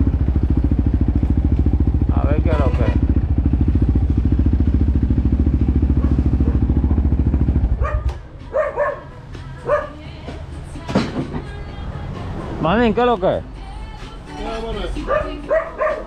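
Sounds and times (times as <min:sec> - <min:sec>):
atv engine running: 0:00.0 - 0:10.0, 0:15.0 - 0:16.0
dog barking: 0:06.0 - 0:06.7, 0:07.7 - 0:10.0, 0:15.0 - 0:16.0.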